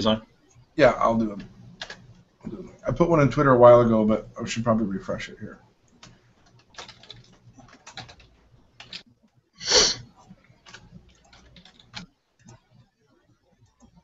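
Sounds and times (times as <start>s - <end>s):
keyboard keys clicking: 1.3s - 2.2s, 5.9s - 9.1s, 10.0s - 12.9s.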